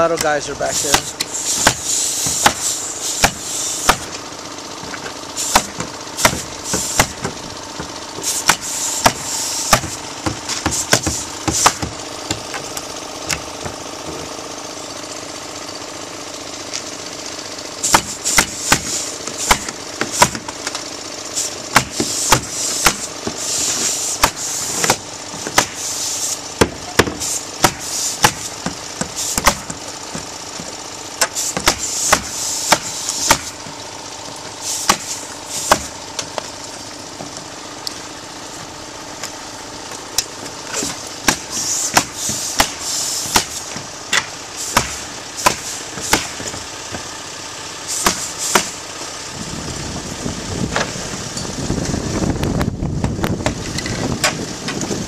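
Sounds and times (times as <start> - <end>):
engine hum: 0.0 - 55.0
nail guns firing: 0.1 - 4.2, 5.4 - 13.5, 17.8 - 20.6, 21.7 - 30.2, 31.2 - 33.6, 34.6 - 35.9, 40.8 - 46.6, 47.9 - 48.8
air hiss: 0.7 - 4.0, 5.4 - 7.1, 8.2 - 9.8, 21.4 - 24.8, 25.6 - 26.5, 27.2 - 28.5, 31.3 - 33.5, 34.6 - 35.9, 41.4 - 43.6, 44.5 - 46.3, 47.8 - 48.8.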